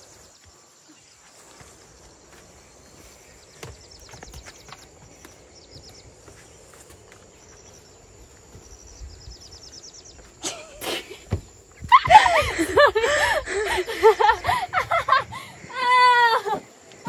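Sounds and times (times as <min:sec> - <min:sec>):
footsteps on path and platform: 0:00.0 - 0:13.1.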